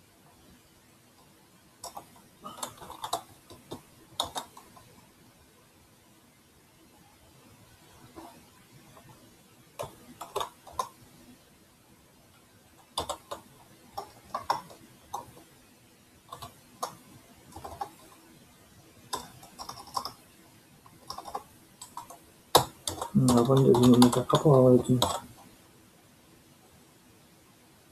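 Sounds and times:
keyboard keys clicking: 1.8s - 4.9s, 9.8s - 11.0s, 12.8s - 15.5s, 16.3s - 18.1s, 19.1s - 20.2s, 20.9s - 25.3s.

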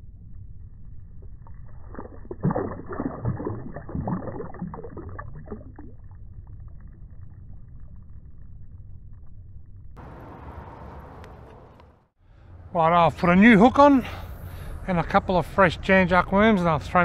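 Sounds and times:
shallow water splashing: 1.4s - 9.3s
freeway traffic rumble: 10.0s - 17.0s.

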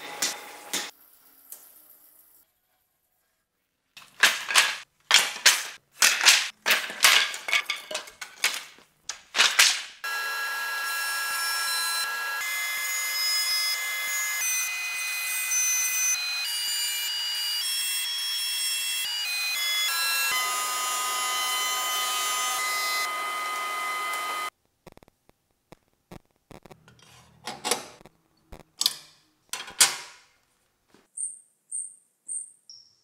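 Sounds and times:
power saw cutting wood: 10.0s - 24.5s
thickness planer whining: 10.1s - 24.5s.

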